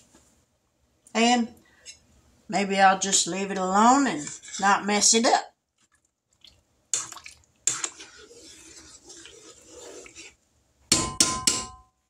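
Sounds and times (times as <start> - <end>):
metal spoon scraping pot: 3.8 - 5.1, 7.6 - 10.4
spoon clinking against pot: 10.9 - 11.9.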